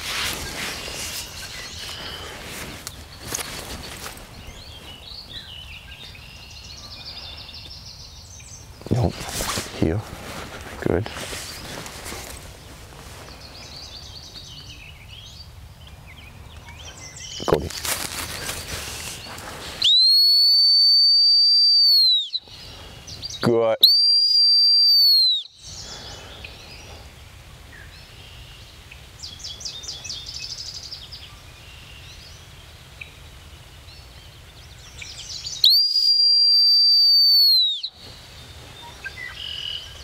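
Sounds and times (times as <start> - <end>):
dog whistle blasts: 19.8 - 22.4, 23.8 - 25.5, 35.6 - 37.9.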